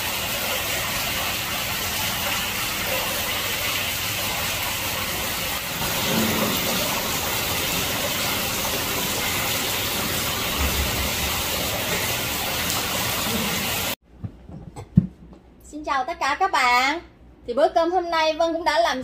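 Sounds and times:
water running into pond: 0.0 - 14.0.

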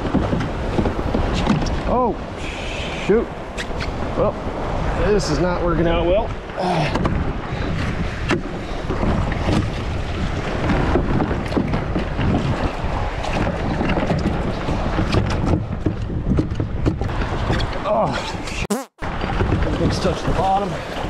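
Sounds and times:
waves slapping against kayak hull: 0.0 - 2.4, 6.0 - 18.5
wind buffeting microphone: 0.0 - 21.0.

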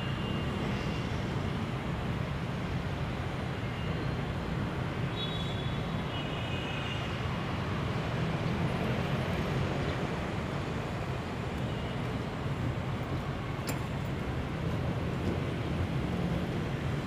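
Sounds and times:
city rumble: 0.0 - 17.0.

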